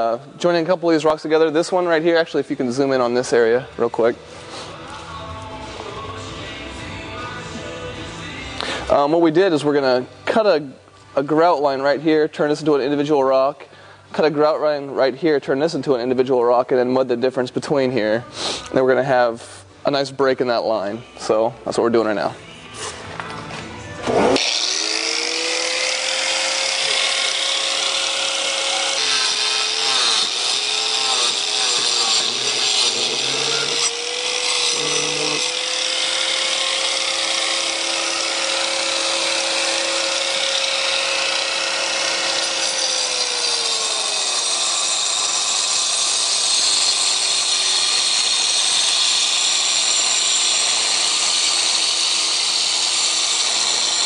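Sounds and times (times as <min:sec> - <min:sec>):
power tool motor whine: 0:24.0 - 0:54.0.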